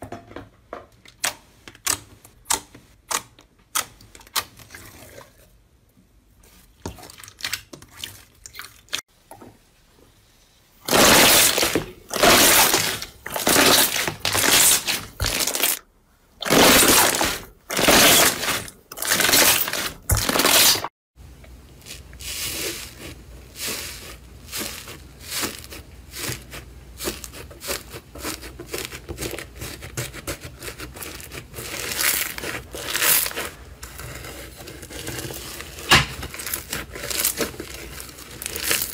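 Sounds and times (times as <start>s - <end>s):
slime squelching: 1.2s - 9.1s, 10.8s - 38.9s
slime crackling: 10.8s - 15.8s, 21.8s - 38.9s.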